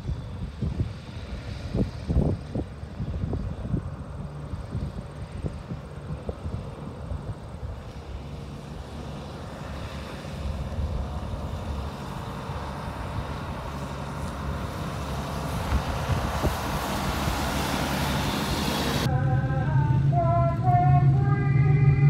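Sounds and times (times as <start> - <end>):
diesel truck engine running: 0.0 - 22.0
water spray hissing: 15.1 - 19.1.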